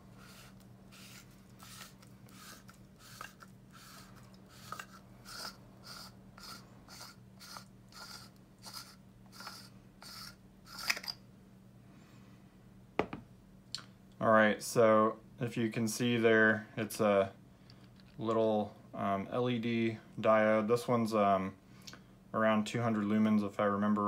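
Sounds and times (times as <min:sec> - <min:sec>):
flashlight head unscrewing scrape: 0:00.2 - 0:11.2.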